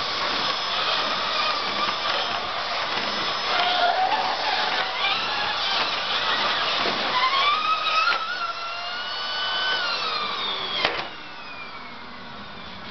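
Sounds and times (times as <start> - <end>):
paper scraps rattling in vacuum: 0.0 - 8.5
vacuum cleaner motor whine: 0.0 - 12.9.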